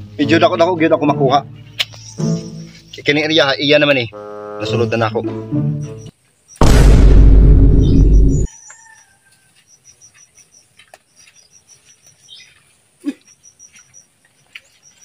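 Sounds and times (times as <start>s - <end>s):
insects chirping: 1.9s - 4.2s, 5.8s - 6.6s, 7.8s - 15.0s.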